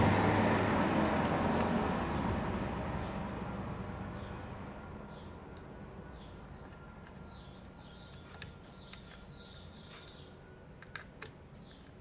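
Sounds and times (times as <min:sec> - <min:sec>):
small metal clicks: 0:06.6 - 0:12.0.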